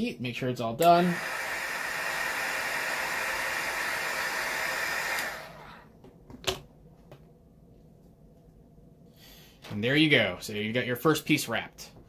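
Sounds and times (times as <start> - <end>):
heat gun blowing: 0.8 - 5.9.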